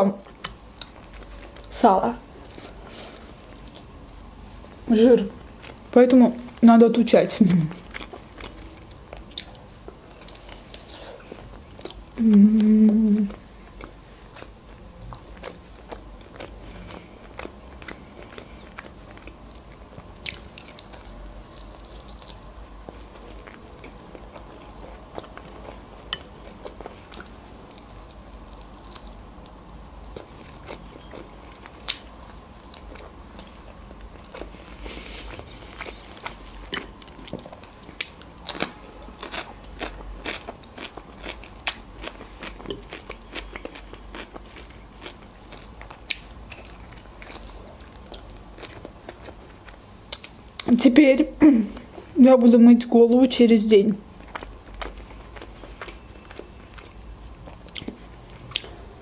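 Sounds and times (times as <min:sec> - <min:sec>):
person chewing crunchy food: 0:00.2 - 0:06.6, 0:07.7 - 0:50.7, 0:54.0 - 0:59.0.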